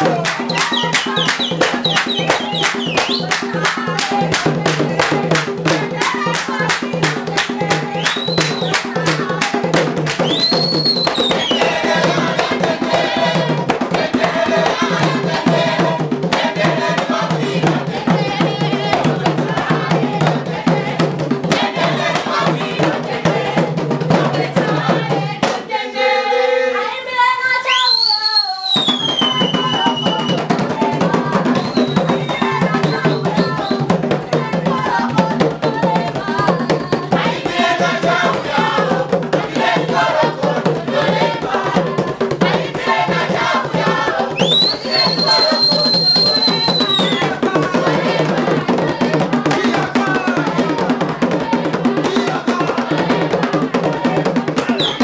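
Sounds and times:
hand drums: 0.0 - 25.8, 28.8 - 55.0
group singing: 0.0 - 27.9, 28.8 - 55.0
clapping: 0.2 - 1.4, 2.0 - 4.4
high shrill sliding calls: 44.4 - 47.2.

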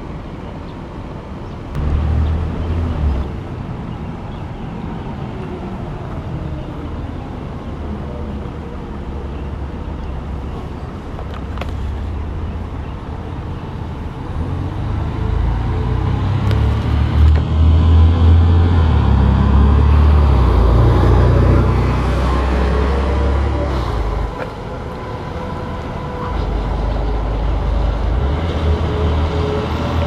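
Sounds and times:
bus diesel engine running: 6.6 - 30.0.

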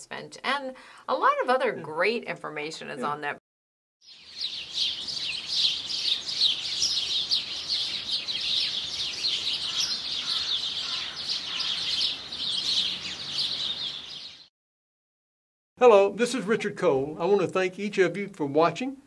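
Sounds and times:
songbirds chirping: 4.0 - 14.5.

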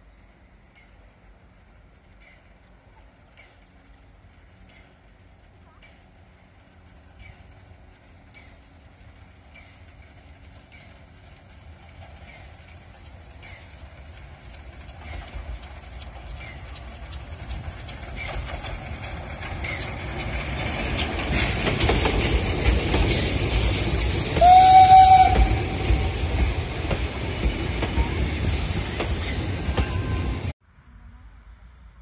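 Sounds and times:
steam locomotive running past: 0.0 - 30.6
wheels clattering on rails: 1.8 - 30.5
steam whistle blast: 24.3 - 26.2.

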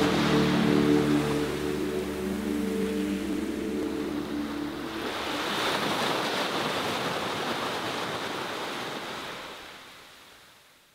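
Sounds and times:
closing music: 0.0 - 5.6
sea waves breaking on shore: 0.0 - 10.7.

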